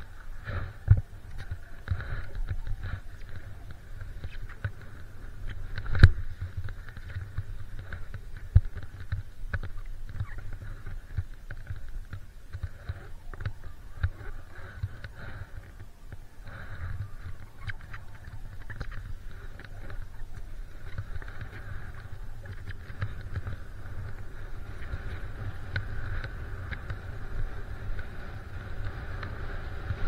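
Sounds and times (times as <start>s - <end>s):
skis running through snow: 0.0s - 30.0s
wind on microphone: 0.0s - 30.0s.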